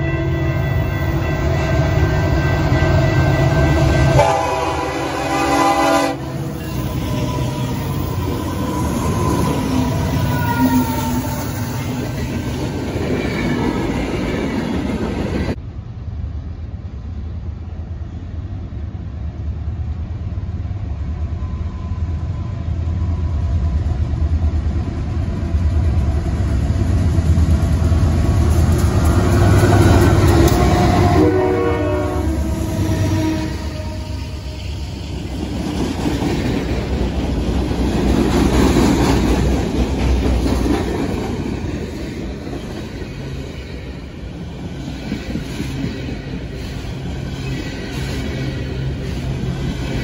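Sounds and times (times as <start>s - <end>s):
locomotive horn: 0.0s - 12.0s, 29.5s - 34.8s
rail and wheel noise: 0.0s - 50.0s.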